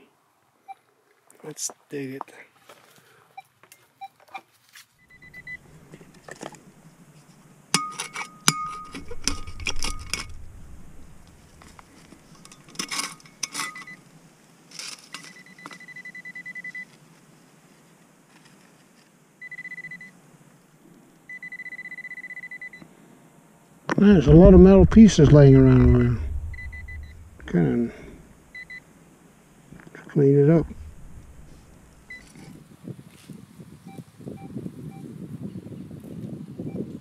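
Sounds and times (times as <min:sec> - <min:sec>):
metal tool scraping stony soil: 0:05.9 - 0:14.0
sharp metal clinks: 0:07.8 - 0:11.6
high electronic tone: 0:24.3 - 0:27.8.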